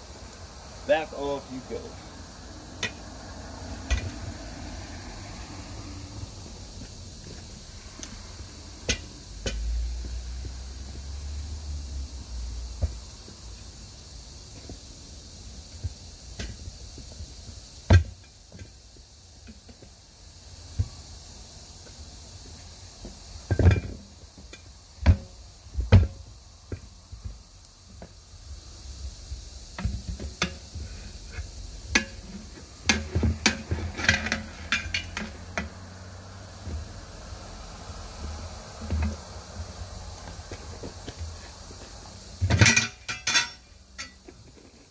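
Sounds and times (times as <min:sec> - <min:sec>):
tire irons clanking on steel wheel: 0:02.8 - 0:03.1, 0:03.8 - 0:04.2, 0:08.8 - 0:09.9, 0:23.0 - 0:26.3, 0:29.7 - 0:36.9, 0:40.2 - 0:44.9.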